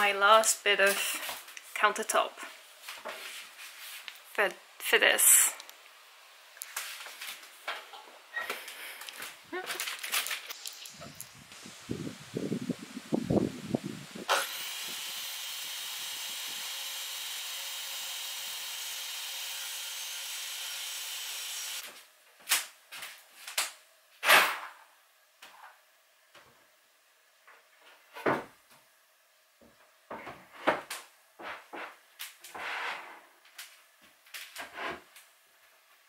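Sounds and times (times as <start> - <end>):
power saw cutting wood: 14.3 - 21.8.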